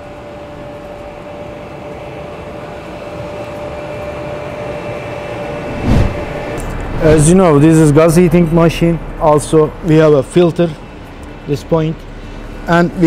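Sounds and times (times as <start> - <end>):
industrial hall mechanical hum: 0.0 - 13.0
transition effect burst: 5.6 - 7.4.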